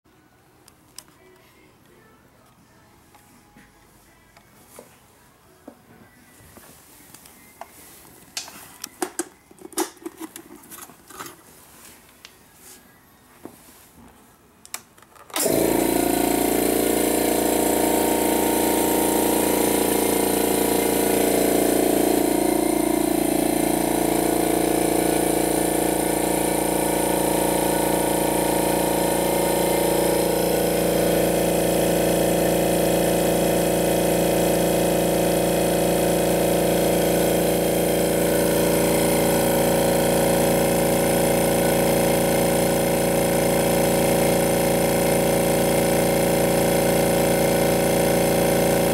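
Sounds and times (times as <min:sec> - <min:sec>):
air compressor humming: 0:15.3 - 0:48.9.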